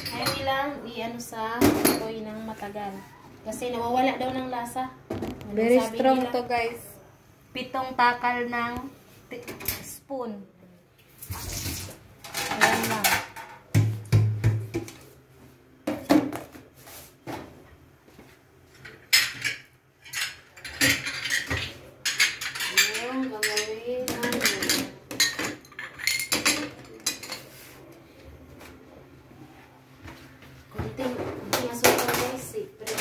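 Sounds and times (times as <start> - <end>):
plates and dishes clattering: 18.8 - 27.6.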